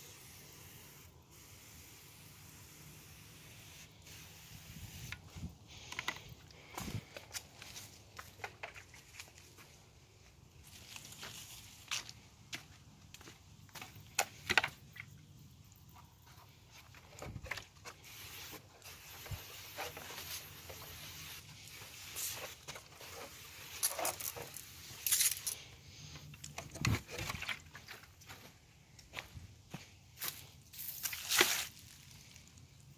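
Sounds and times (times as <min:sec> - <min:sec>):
aerosol spray can hissing: 0:00.0 - 0:05.3, 0:18.0 - 0:25.2
footsteps on dirt: 0:05.3 - 0:14.8, 0:21.7 - 0:32.0.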